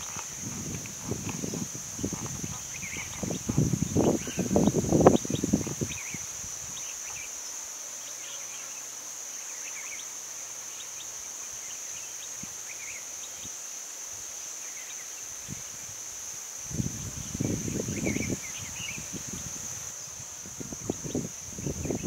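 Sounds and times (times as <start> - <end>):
insect chirps: 0.0 - 22.0
insects droning: 0.0 - 22.0.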